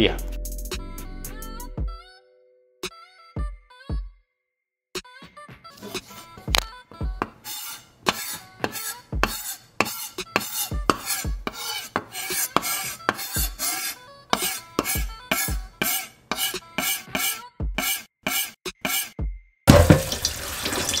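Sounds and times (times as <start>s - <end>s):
background music with low beat: 0.0s - 2.0s, 6.5s - 7.2s, 10.7s - 11.5s
knife scraping pork skin: 5.8s - 6.6s, 7.2s - 19.2s.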